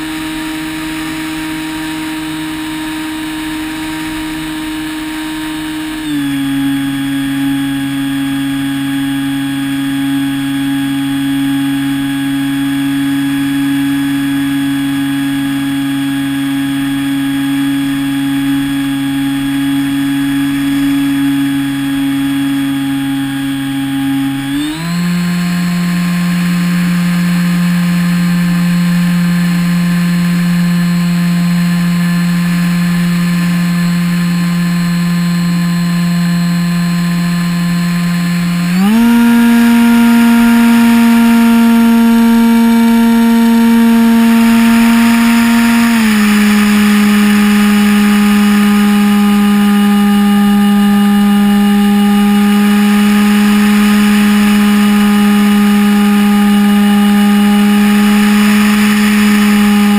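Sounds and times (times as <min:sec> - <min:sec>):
electric motor and propeller whining: 0:00.0 - 0:59.9.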